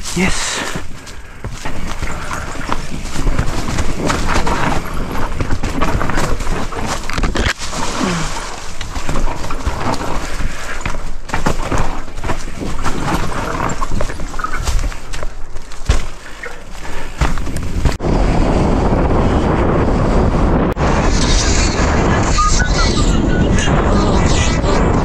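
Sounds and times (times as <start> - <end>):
tyres clattering over rocks: 0.0 - 18.0
tyres crunching through leaves: 0.0 - 18.0.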